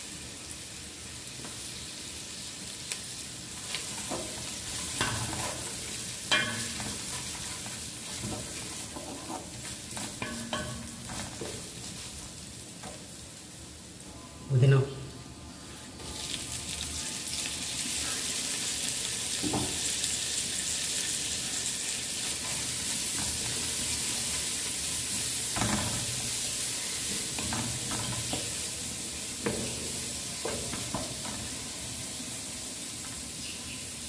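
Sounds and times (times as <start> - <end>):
leaves sizzling in hot oil: 0.0 - 14.0, 15.6 - 34.0
spatula scraping and tapping pan: 6.3 - 11.6.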